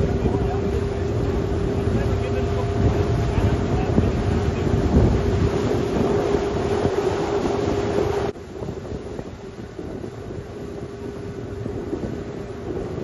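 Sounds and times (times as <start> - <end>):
boat engine humming: 0.0 - 13.0
wind noise on microphone: 0.0 - 13.0.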